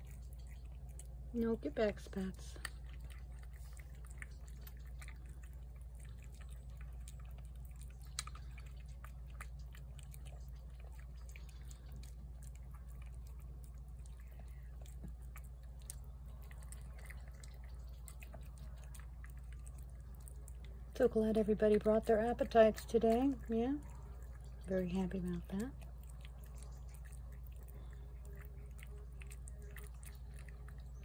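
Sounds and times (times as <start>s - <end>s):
cat chewing wetly: 0.0s - 31.0s
low steady rumble: 0.0s - 31.0s.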